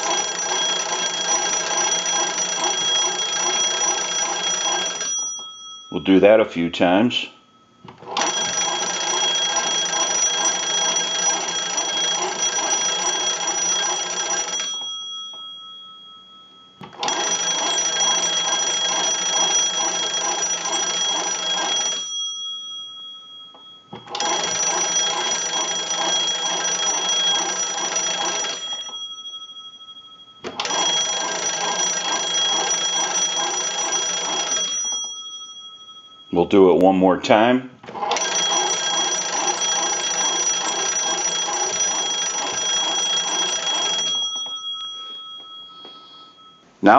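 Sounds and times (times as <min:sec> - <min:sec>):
telephone bells ringing: 0:00.0 - 0:07.0, 0:08.0 - 0:36.7, 0:37.9 - 0:46.9.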